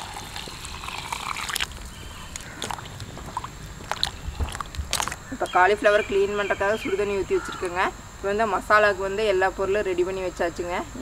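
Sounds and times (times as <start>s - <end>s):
hot water pouring into steel bowl: 0.0s - 1.8s.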